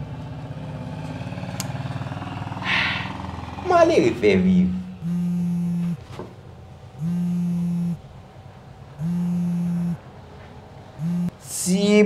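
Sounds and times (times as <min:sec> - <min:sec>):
telephone ringback tone: 0:05.0 - 0:06.0, 0:07.0 - 0:08.0, 0:09.0 - 0:10.0, 0:11.0 - 0:11.3.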